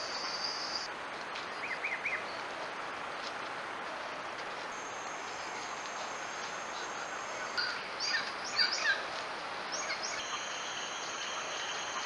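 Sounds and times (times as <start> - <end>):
bird call notes: 9.7 - 12.0
insect drone: 9.8 - 12.0.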